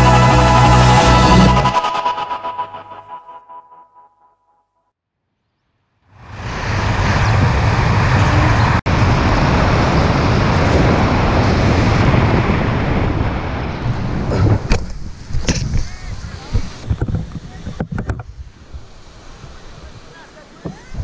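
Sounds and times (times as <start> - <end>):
wind rushing over microphone: 6.2 - 21.0.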